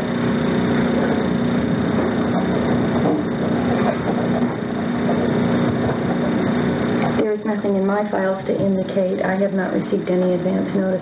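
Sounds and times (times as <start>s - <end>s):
background hum and hiss: 0.0s - 11.0s
low drone: 0.0s - 11.0s
thin high whine: 0.0s - 11.0s.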